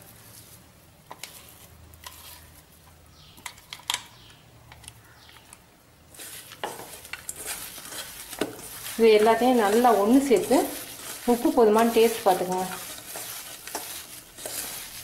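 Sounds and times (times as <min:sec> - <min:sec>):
hand rubbing mixture in bowl: 0:06.1 - 0:15.0.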